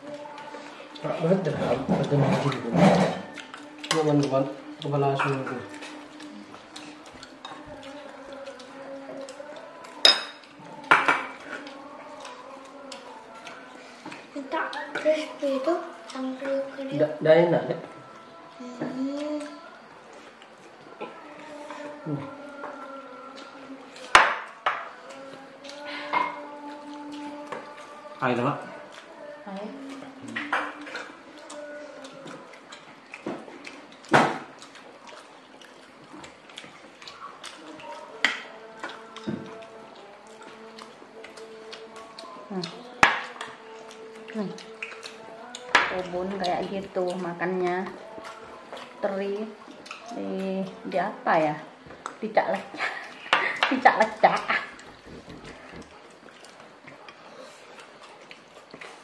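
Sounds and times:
plates clattering: 1.7s - 3.4s, 10.0s - 11.4s
spoons clinking on ceramic plates: 10.0s - 11.4s.

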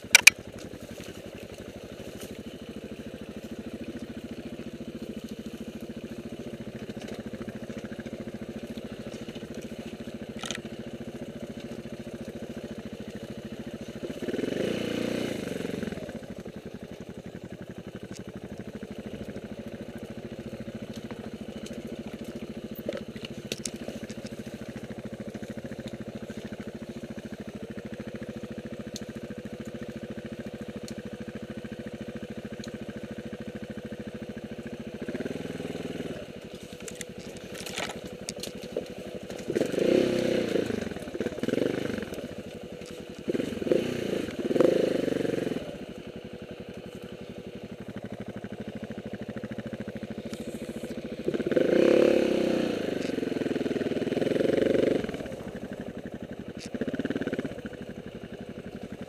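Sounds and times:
motorcycle engine idling: 0.0s - 59.0s
motorcycle engine revving: 0.0s - 59.0s.

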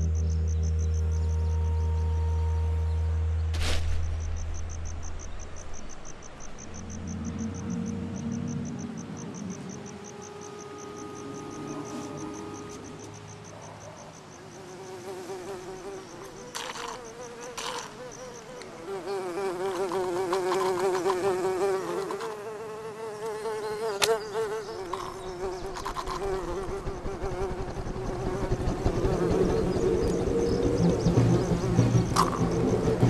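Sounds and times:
low rumble: 2.8s - 10.2s, 26.0s - 33.0s
fly buzzing: 14.5s - 33.0s.

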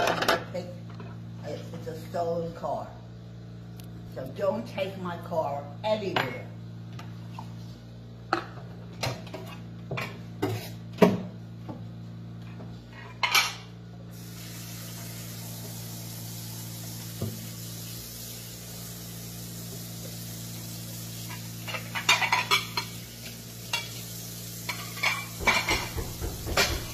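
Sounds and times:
tap water running: 14.1s - 26.9s
dishes and cutlery clattering: 21.7s - 23.0s, 24.7s - 26.9s.

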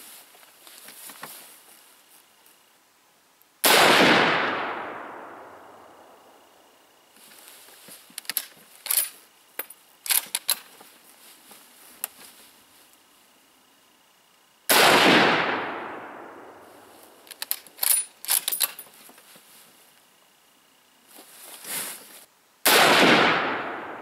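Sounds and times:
rifle shot with echo: 3.6s - 6.1s, 14.7s - 16.6s, 22.6s - 24.0s.

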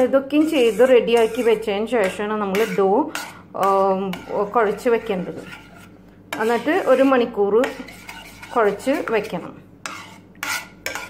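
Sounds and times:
spoon scraping a pan: 0.0s - 11.0s.

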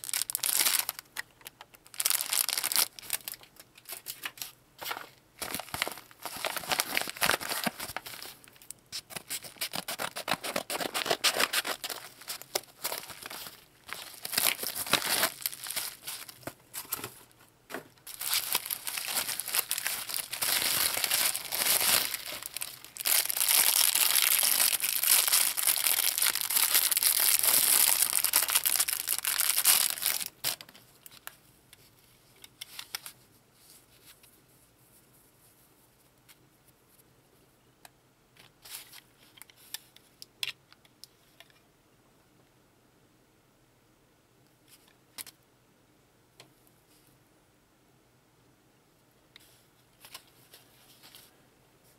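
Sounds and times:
plastic packaging crinkling: 0.0s - 17.4s, 18.0s - 31.3s.

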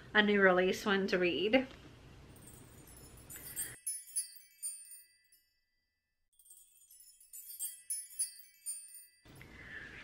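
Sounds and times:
tinkling chime music: 2.3s - 9.9s.

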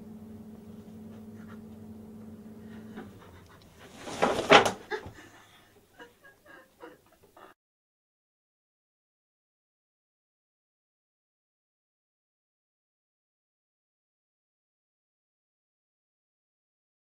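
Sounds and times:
steady low hum: 0.0s - 7.5s
heavy panting breath: 2.6s - 4.0s, 5.1s - 7.6s.

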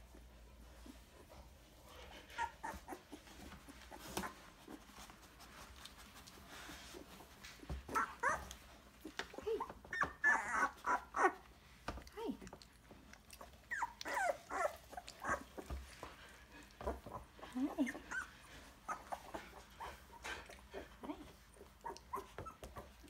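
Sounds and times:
puppies squeaking and whining: 1.9s - 5.2s, 6.8s - 11.5s, 13.1s - 23.0s.

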